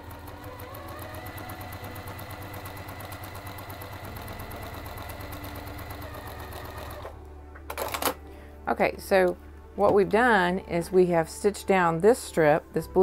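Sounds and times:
sewing machine stitching: 0.0s - 8.1s.

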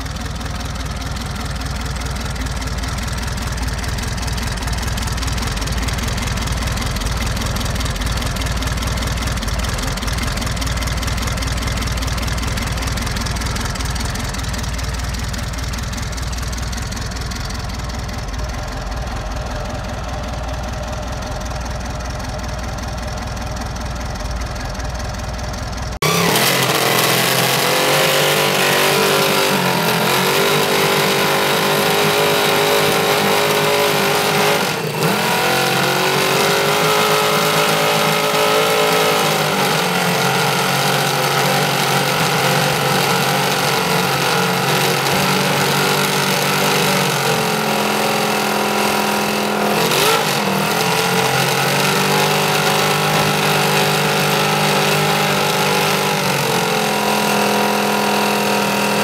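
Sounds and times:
inline four engine idling: 0.0s - 56.6s
racing engine revving: 26.0s - 59.0s.

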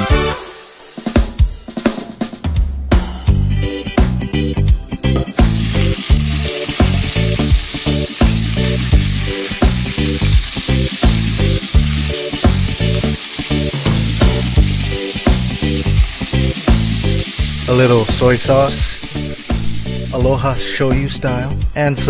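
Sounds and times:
background music with beat: 0.0s - 22.0s
fish sizzling in hot oil: 5.4s - 20.6s.

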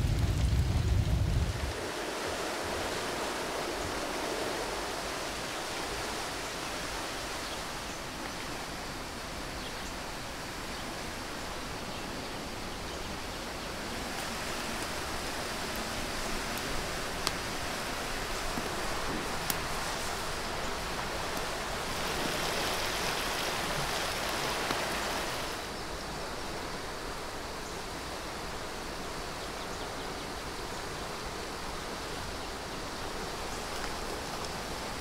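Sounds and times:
rushing outdoor ambience: 0.0s - 35.0s.

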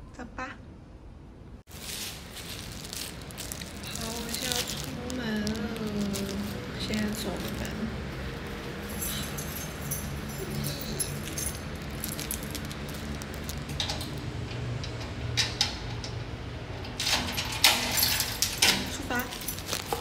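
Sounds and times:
low steady hum: 0.0s - 15.5s
keys jangling: 1.8s - 14.2s, 17.0s - 20.0s.

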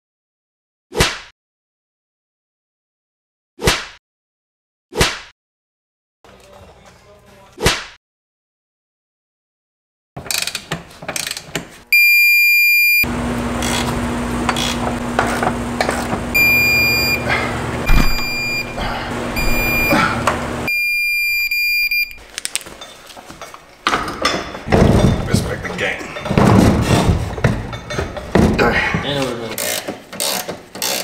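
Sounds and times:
torque wrench beeping: 11.9s - 13.1s, 16.3s - 18.8s, 19.4s - 22.2s
mechanical noise with low hum: 13.1s - 22.3s
ratchet clicks: 29.6s - 31.0s.

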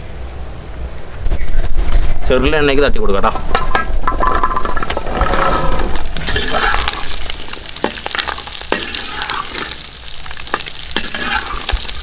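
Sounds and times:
steady frying hiss: 5.0s - 12.0s
shallots sizzling in hot oil: 5.1s - 12.0s
spatula scraping and knocking pot: 7.8s - 9.8s, 10.5s - 11.9s.

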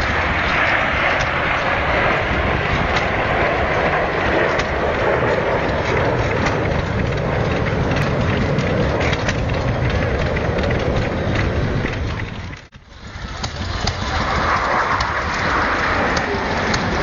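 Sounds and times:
jet engines overhead: 0.0s - 17.0s.

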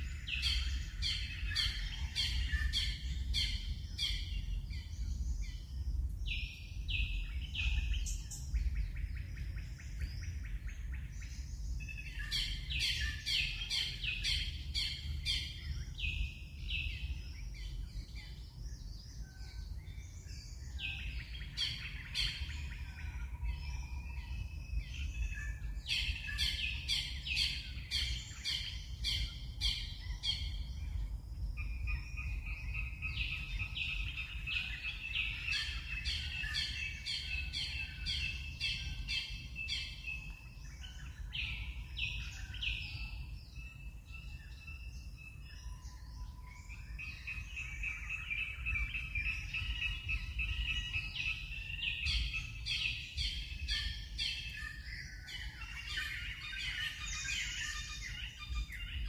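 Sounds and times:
steady low rumble: 0.0s - 45.8s
birds chirping: 0.0s - 59.0s.

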